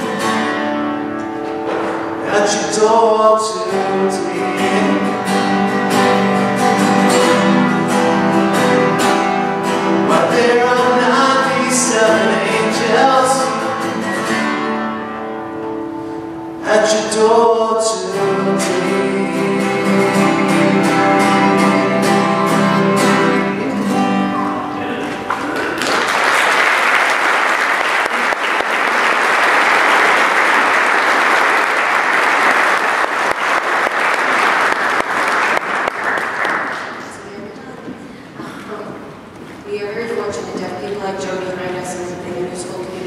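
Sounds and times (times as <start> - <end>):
strummed acoustic guitar: 0.0 - 25.6
person singing: 2.2 - 5.8, 9.9 - 14.3, 16.6 - 25.2.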